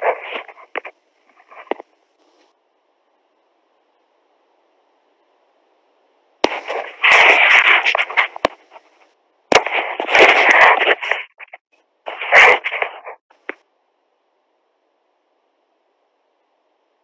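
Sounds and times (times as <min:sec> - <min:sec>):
crackling distorted call audio: 0:00.0 - 0:05.4, 0:06.3 - 0:13.7
faint hiss: 0:00.0 - 0:10.0.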